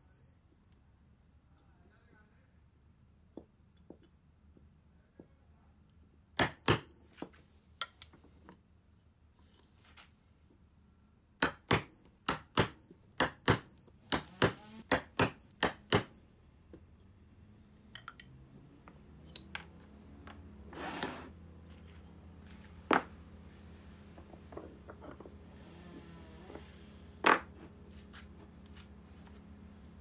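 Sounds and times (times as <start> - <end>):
hammer tapping metal tool: 6.4 - 8.2, 11.4 - 17.1.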